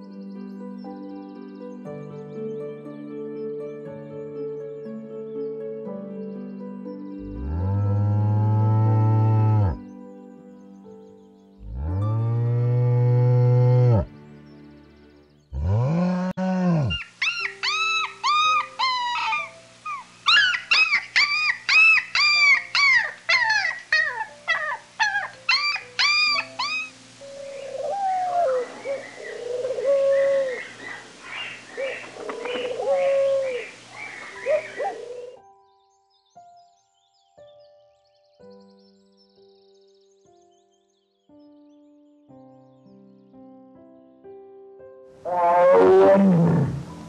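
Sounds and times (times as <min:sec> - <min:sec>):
soft background music: 0:00.0 - 0:47.0
animal cries: 0:16.6 - 0:30.7, 0:31.8 - 0:35.4, 0:45.3 - 0:47.0.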